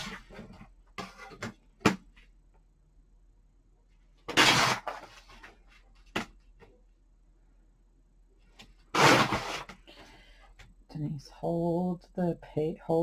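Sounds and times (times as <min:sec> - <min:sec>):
paper tearing: 0:04.3 - 0:05.4, 0:08.9 - 0:09.7.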